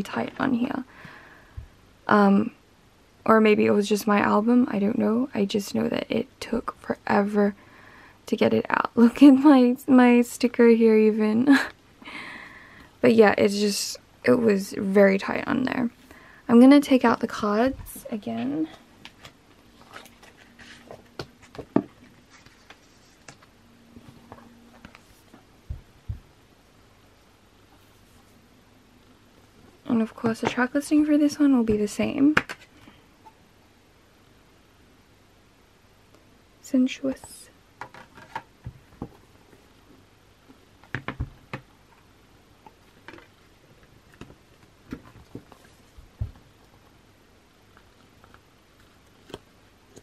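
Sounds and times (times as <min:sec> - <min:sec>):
soft low thumps: 0:25.6 - 0:26.4.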